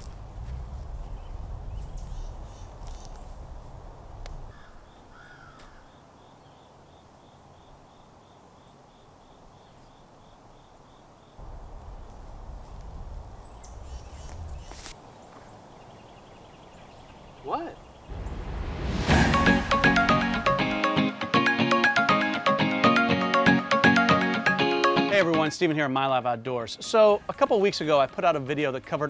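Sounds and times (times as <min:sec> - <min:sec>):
low wind rumble on microphone: 0:00.0 - 0:05.2, 0:11.4 - 0:19.8
bird cawing: 0:04.5 - 0:06.7.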